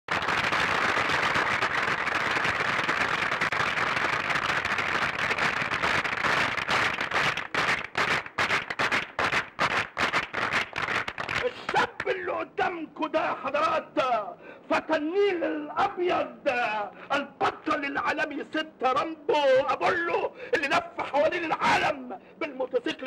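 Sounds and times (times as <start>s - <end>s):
crowd applauding: 0.0s - 12.2s.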